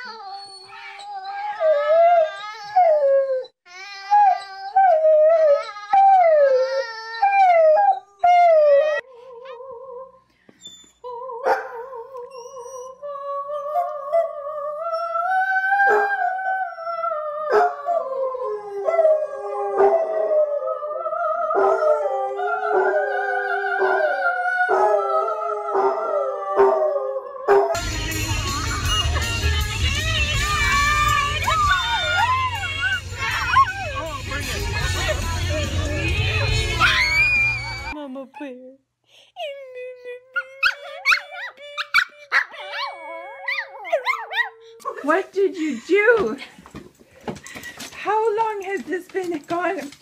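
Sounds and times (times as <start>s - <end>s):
dog howling at length: 13.5s - 27.8s
dogs howling: 13.6s - 27.9s, 28.6s - 38.0s
music playing: 27.8s - 38.0s.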